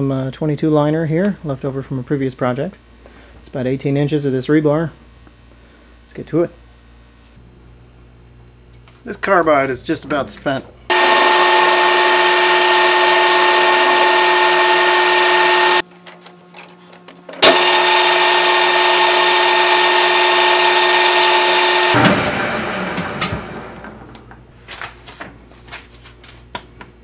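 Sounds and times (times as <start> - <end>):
metal lathe whining while cutting: 10.9 - 15.8, 17.4 - 23.0.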